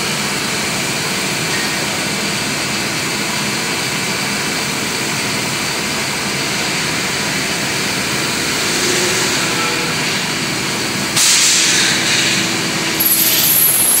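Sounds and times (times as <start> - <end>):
lathe machine whir: 2.1 - 14.0
high-pitched whine: 6.5 - 14.0
loud hiss: 7.0 - 14.0.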